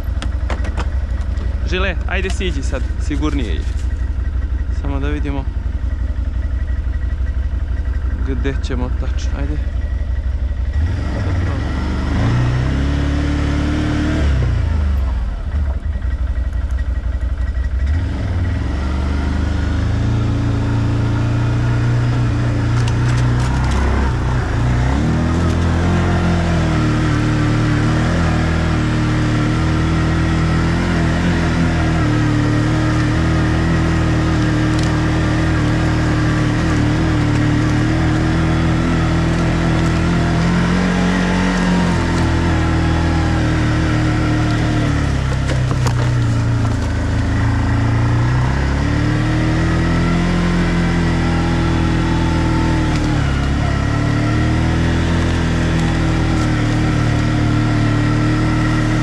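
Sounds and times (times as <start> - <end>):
atv engine revving: 0.0 - 59.0.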